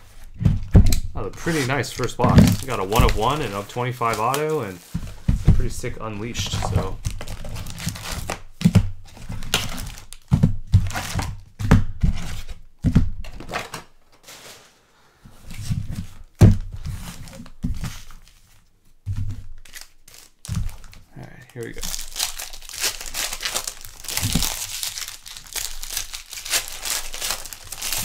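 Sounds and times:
wrapping crinkling and tearing: 1.3 - 11.4, 19.4 - 28.0
cardboard thuds: 4.8 - 5.7.

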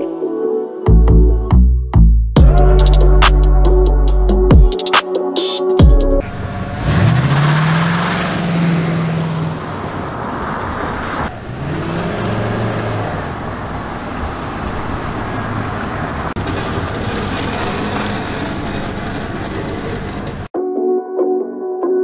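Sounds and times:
pickup truck engine accelerating: 6.2 - 20.5.

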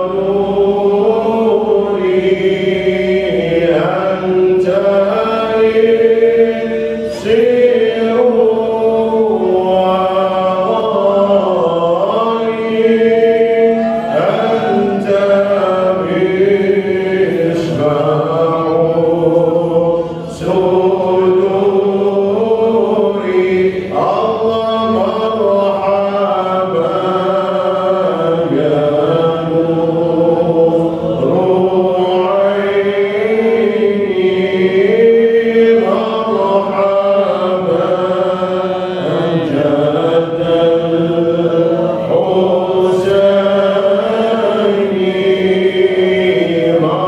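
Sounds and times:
voices chanting melodically: 0.0 - 47.0.

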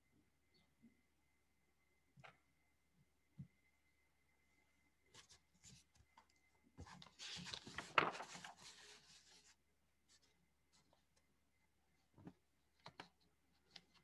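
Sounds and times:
paper rustling and scraping: 6.8 - 11.0.

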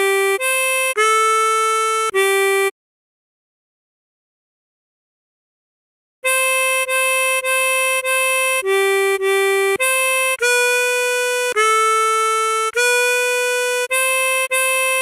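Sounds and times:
tremolo harmonica melody: 0.0 - 2.7, 6.2 - 15.0.

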